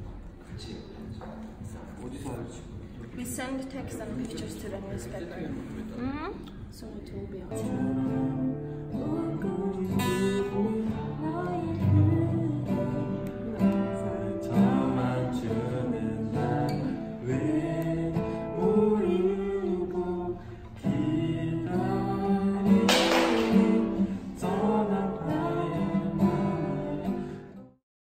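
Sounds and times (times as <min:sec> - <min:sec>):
person singing: 0:07.5 - 0:27.3
acoustic guitar strumming: 0:07.5 - 0:27.6.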